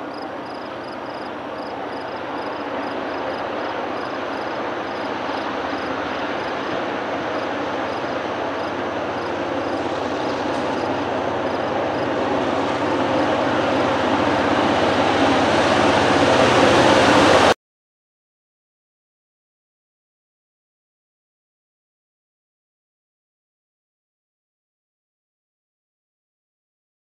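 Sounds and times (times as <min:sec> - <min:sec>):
diesel locomotives running: 0:00.0 - 0:17.6
freight train approaching: 0:00.0 - 0:17.6.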